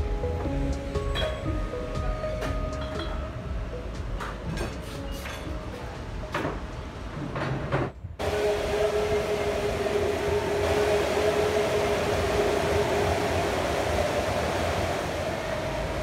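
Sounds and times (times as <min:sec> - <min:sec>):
steady hum: 0:08.2 - 0:16.0
swimmers splashing: 0:08.2 - 0:16.0.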